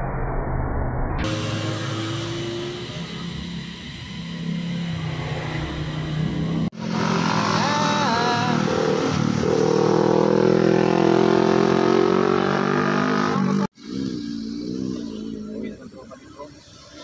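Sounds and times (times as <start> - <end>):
motorcycle passing at speed: 1.2 - 13.7
quieter motorcycle engine wavering: 1.2 - 16.6.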